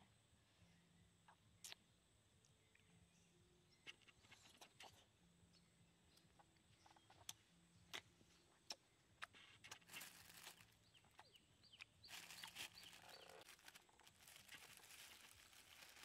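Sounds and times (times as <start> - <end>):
plastic bag crinkling: 9.7 - 10.8, 12.1 - 16.0.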